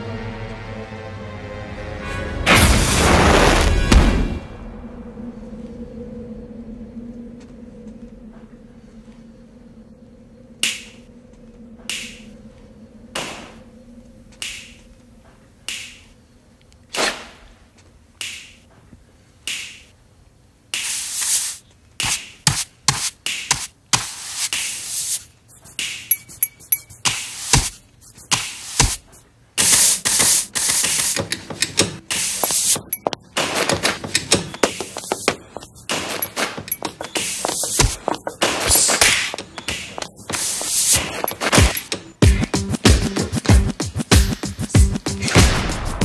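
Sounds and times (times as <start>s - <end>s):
finger snaps: 10.6s - 11.1s, 11.8s - 12.3s, 14.3s - 14.9s, 15.6s - 16.8s, 18.2s - 18.6s, 19.4s - 19.9s, 20.7s - 21.0s.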